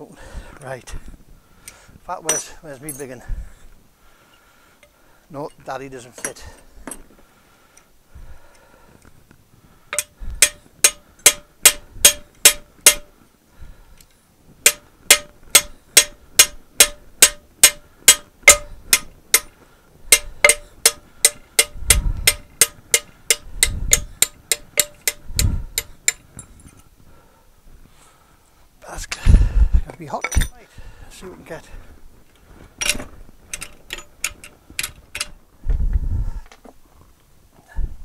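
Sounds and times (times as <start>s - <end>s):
hammer striking steel punch: 10.0s - 13.1s, 14.7s - 19.5s, 20.1s - 26.2s.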